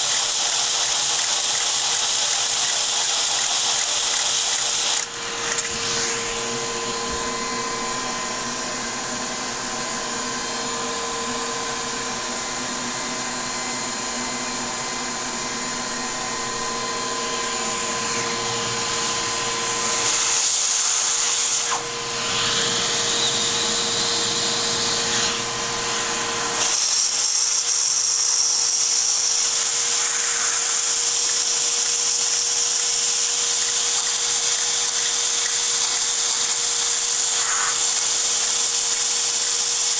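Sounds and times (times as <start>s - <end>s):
model steam engine whirring: 0.0s - 5.8s, 26.5s - 39.9s.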